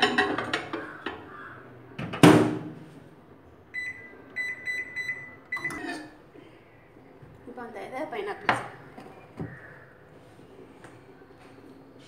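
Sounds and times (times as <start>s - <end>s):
glass dish clattering: 0.0s - 0.9s
microwave beeps: 3.7s - 6.0s.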